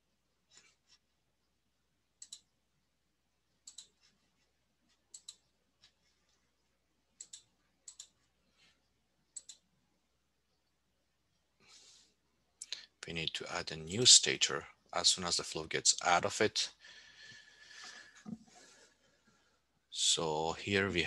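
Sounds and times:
computer mouse clicks: 0:02.2 - 0:02.5, 0:03.6 - 0:04.1, 0:05.0 - 0:06.0, 0:07.2 - 0:08.2, 0:09.3 - 0:09.7.

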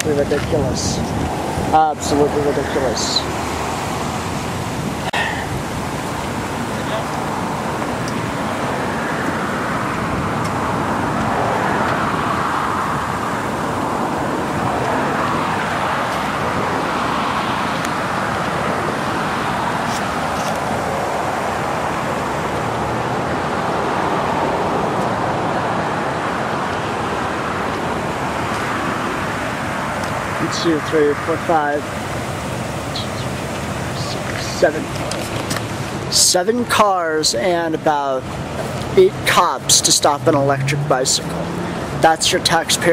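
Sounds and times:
cars passing on street: 0:00.0 - 0:42.9.

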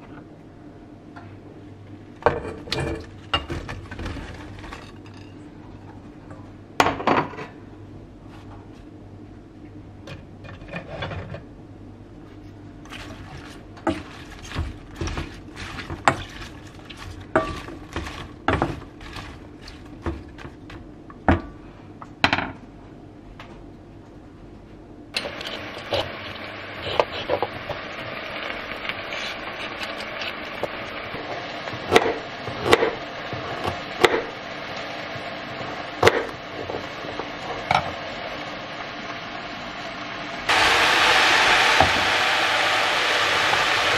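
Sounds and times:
kitchen tap running: 0:12.8 - 0:20.7.

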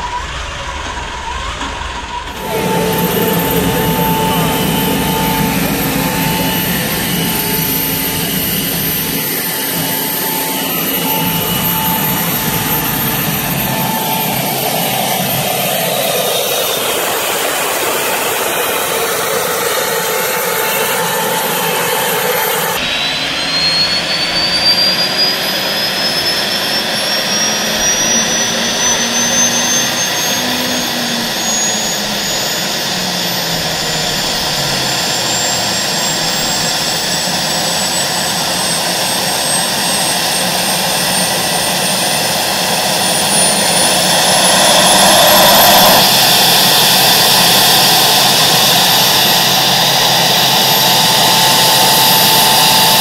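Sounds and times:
gas turbine whine: 0:01.0 - 0:53.0
rush of air: 0:42.8 - 0:47.4.

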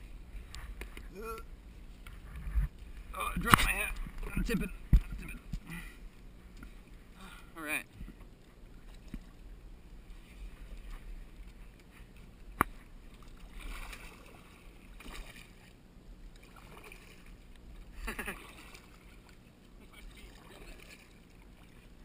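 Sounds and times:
low steady rumble: 0:00.0 - 0:22.0
paddle swishing in water: 0:07.9 - 0:22.0.

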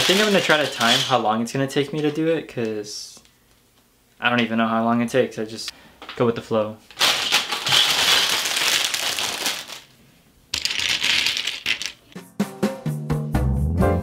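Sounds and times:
plastic pieces clattering: 0:00.0 - 0:02.3, 0:06.9 - 0:12.1
piano music: 0:13.6 - 0:14.0.

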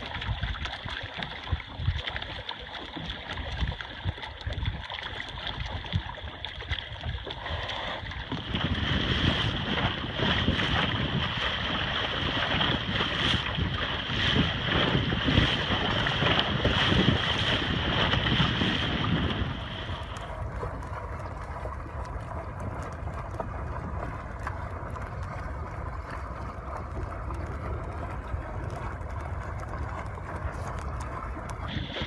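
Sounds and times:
water rushing past hull: 0:00.0 - 0:32.0
wind buffeting microphone: 0:08.0 - 0:32.0.

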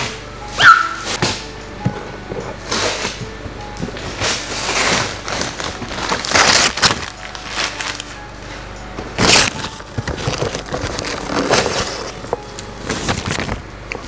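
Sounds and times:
wrapping paper tearing and rustling: 0:04.0 - 0:08.2, 0:09.2 - 0:13.6.

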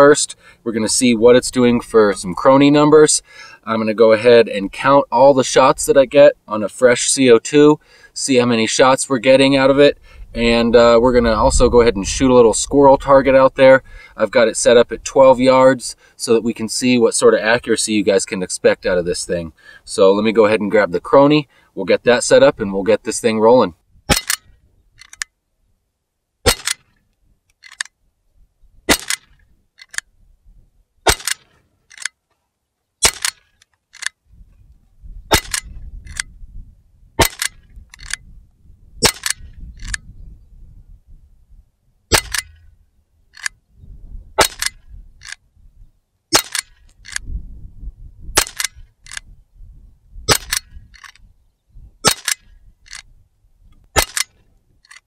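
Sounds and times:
bb pistol shots popping: 0:24.1 - 0:24.5, 0:26.4 - 0:26.9, 0:28.9 - 0:29.4, 0:31.0 - 0:31.6, 0:33.0 - 0:33.5, 0:35.3 - 0:36.3, 0:37.2 - 0:38.2, 0:39.0 - 0:40.0, 0:42.1 - 0:42.7, 0:44.4 - 0:45.4, 0:46.3 - 0:47.2, 0:48.3 - 0:49.2, 0:50.3 - 0:51.1, 0:52.0 - 0:53.0, 0:53.9 - 0:54.4.

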